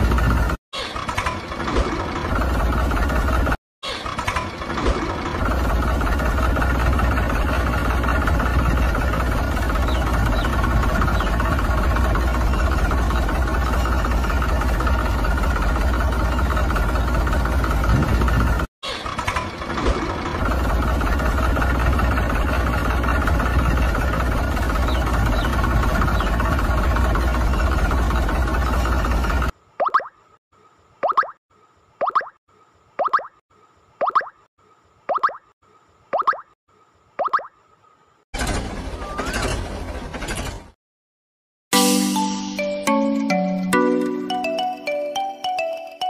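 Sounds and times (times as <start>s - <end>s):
engine running with low rumble: 0.0s - 29.6s.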